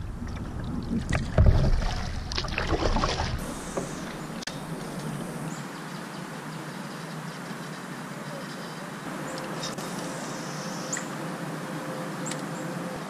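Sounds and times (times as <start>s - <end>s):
wind and water noise: 0.0s - 13.0s
paddle splashes in water: 0.3s - 5.3s.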